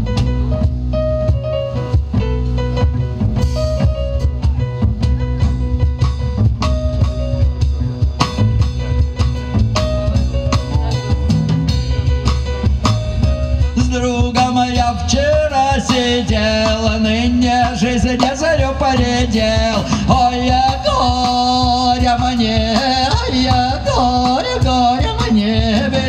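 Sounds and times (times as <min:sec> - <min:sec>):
cajon beat: 0:00.0 - 0:26.0
keyboard melody: 0:00.0 - 0:26.0
plucked double bass: 0:00.0 - 0:26.0
man singing: 0:13.5 - 0:26.0.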